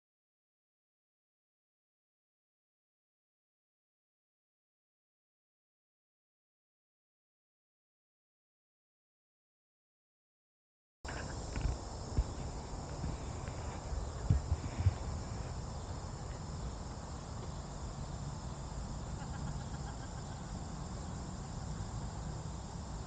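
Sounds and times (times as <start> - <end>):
soft thumps: 11.1 - 15.6
low rumble on microphone: 11.1 - 19.1
high insect chorus: 11.1 - 23.0.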